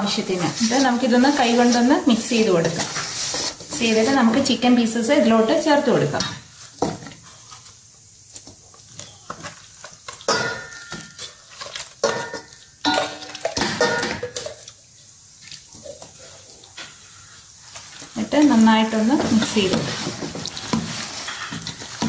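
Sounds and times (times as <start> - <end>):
metal bowl ringing: 10.3 - 11.3, 12.1 - 14.2.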